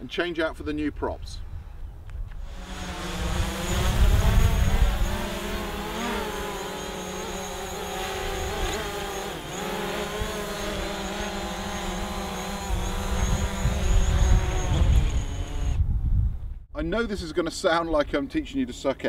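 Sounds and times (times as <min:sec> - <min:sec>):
drone motors buzzing: 0:02.4 - 0:15.8.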